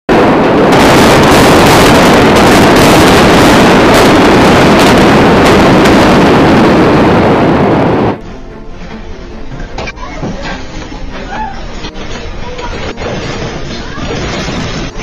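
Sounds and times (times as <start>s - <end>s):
sharp cracks: 0.1s - 7.4s
building collapsing: 0.1s - 8.2s, 9.4s - 15.0s.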